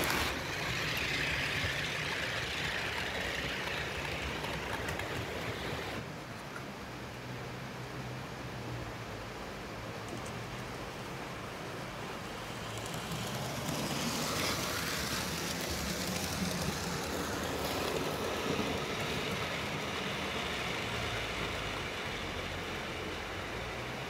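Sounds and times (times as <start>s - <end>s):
model train motor hum: 0.0s - 6.0s, 12.1s - 24.0s
wheels on rails: 0.0s - 6.1s, 11.6s - 24.0s.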